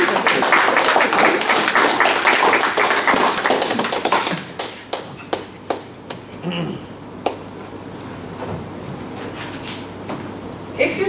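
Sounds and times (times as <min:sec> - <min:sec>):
audience clapping: 0:00.0 - 0:06.3, 0:07.2 - 0:07.5.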